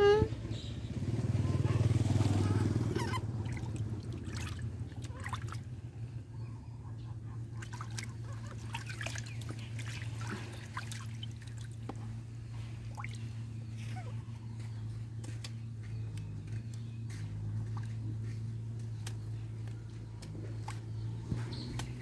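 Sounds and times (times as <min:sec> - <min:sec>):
steady low hum: 0:02.4 - 0:22.0
water splashing in a basin: 0:03.0 - 0:05.7, 0:07.6 - 0:12.0, 0:12.6 - 0:13.4.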